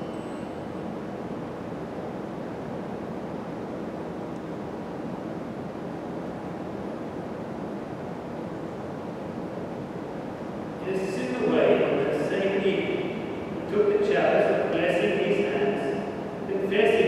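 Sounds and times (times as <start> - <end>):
rushing room noise: 0.0 - 17.0.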